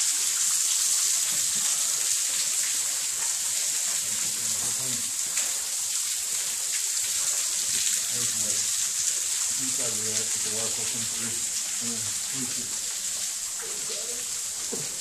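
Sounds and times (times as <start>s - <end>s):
waterfall hissing: 0.0s - 15.0s.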